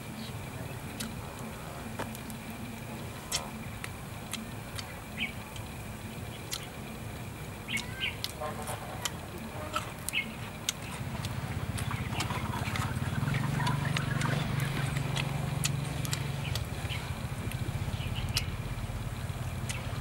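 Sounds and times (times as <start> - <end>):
steady low hum: 0.0 - 20.0
bird chirps: 4.8 - 5.4, 7.7 - 8.3, 9.7 - 15.2, 17.9 - 18.6.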